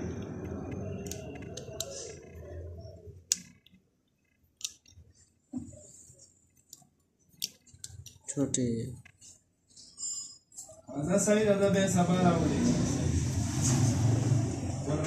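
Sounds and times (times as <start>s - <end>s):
small plastic clicks: 3.2s - 5.1s, 6.5s - 8.3s.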